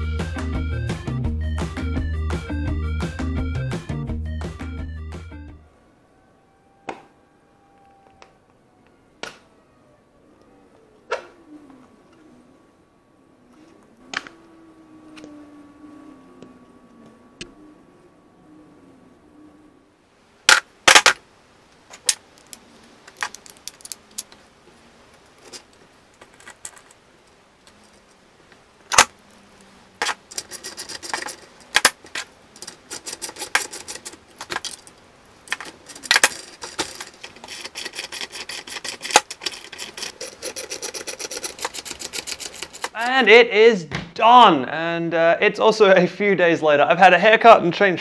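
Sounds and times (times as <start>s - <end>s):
metal hardware clinking and clicking: 21.9s - 24.4s, 25.5s - 27.0s, 30.0s - 43.0s.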